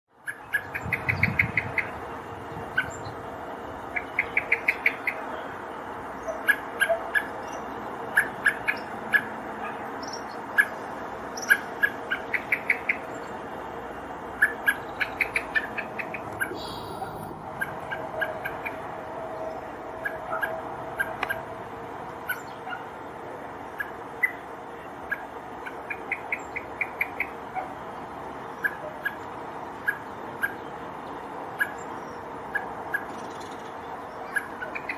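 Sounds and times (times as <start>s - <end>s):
blackbird alarm calls: 0.2s - 2.0s, 2.6s - 3.2s, 3.9s - 5.5s, 6.2s - 13.4s, 14.3s - 18.8s, 19.5s - 21.5s, 22.2s - 23.0s, 28.5s - 30.7s, 31.6s - 34.9s.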